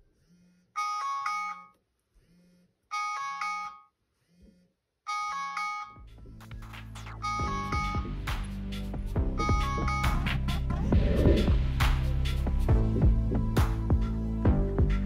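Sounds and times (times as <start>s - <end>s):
phone alarm chime melody: 0.8s - 1.7s, 2.9s - 3.9s, 5.1s - 6.0s, 7.2s - 8.2s, 9.3s - 10.3s
low hum: 6.1s - 14.4s.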